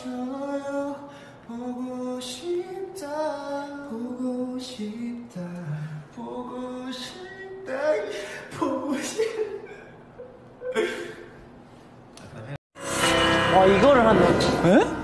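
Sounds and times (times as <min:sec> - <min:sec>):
man laughing: 0:08.6 - 0:11.3.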